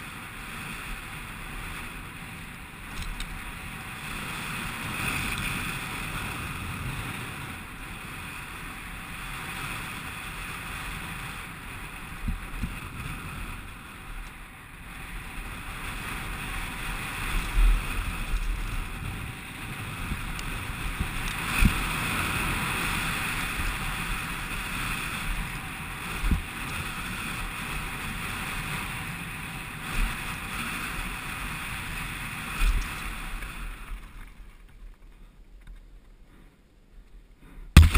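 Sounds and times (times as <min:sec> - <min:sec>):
wind rushing over microphone: 0:00.0 - 0:34.6
bike thumping on bumps: 0:37.4 - 0:37.9.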